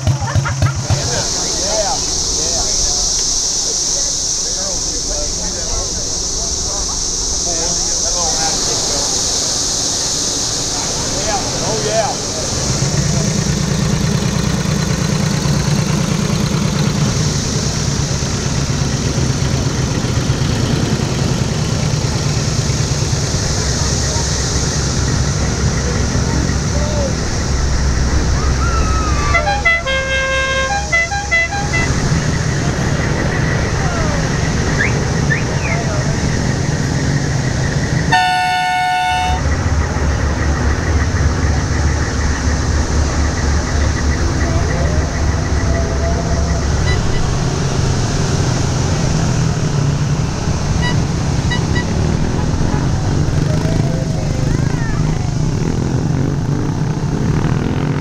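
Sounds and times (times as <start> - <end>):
low vehicle rumble: 0.0 - 58.0
motorcycle engine passing: 10.6 - 58.0
two-tone vehicle horn: 29.2 - 32.3, 38.1 - 39.6, 46.7 - 47.4, 50.8 - 52.2.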